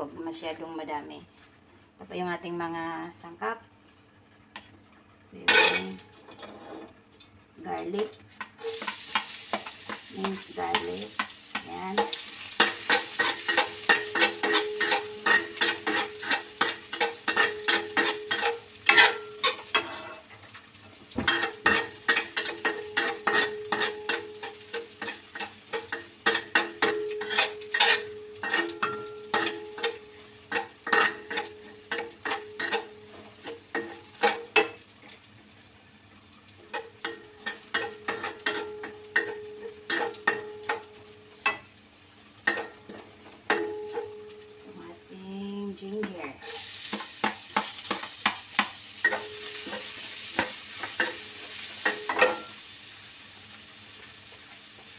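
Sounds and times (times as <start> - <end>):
garlic sizzling in oil: 7.6 - 54.9
spatula scraping metal wok: 8.8 - 20.3, 21.3 - 33.2.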